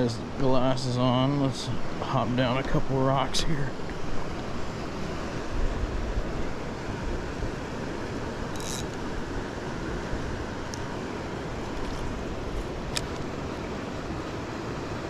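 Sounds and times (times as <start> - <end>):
river water rushing over rocks: 0.0 - 15.0.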